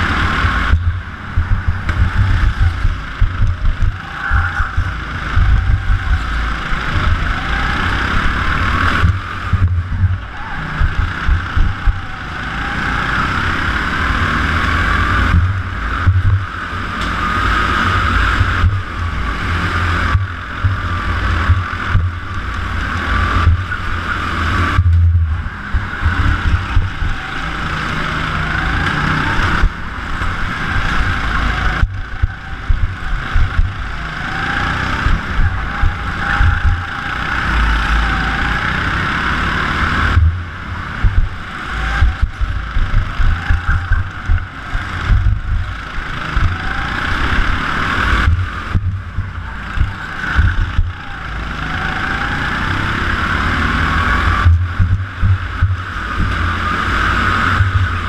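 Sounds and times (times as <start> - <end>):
choppy low rumble: 0.0 - 13.0, 14.5 - 38.2, 39.8 - 52.0, 53.9 - 58.0
go-kart engine racing: 0.0 - 58.0.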